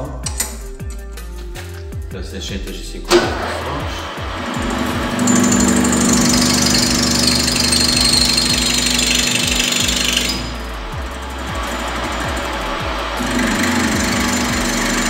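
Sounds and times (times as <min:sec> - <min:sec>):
high rough metal cutting noise: 0:03.1 - 0:15.0
lathe humming: 0:03.1 - 0:15.0.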